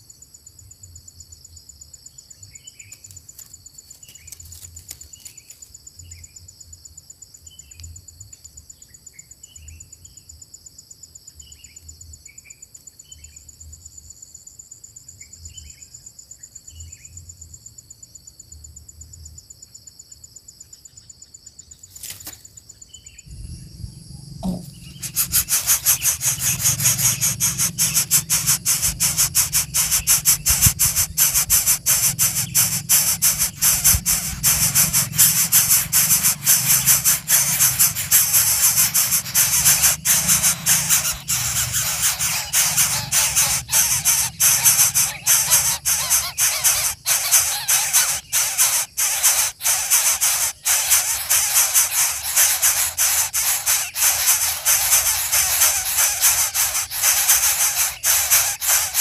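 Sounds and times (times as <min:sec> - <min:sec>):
high drone of insects: 0:00.0 - 0:59.0
small birds chirping: 0:21.6 - 0:59.0
loud rhythmic rattling: 0:24.4 - 0:59.0.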